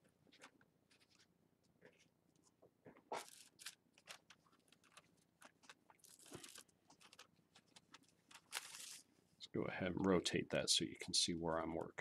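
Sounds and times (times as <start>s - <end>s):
paper kite frame rustling: 3.1s - 9.1s.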